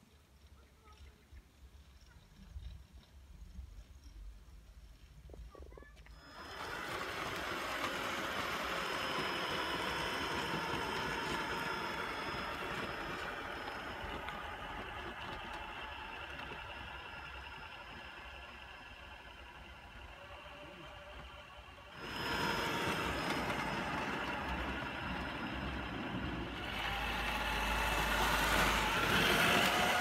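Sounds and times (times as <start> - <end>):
tyres over loose gravel: 0.0 - 30.0
electric drivetrain whine: 6.0 - 30.0.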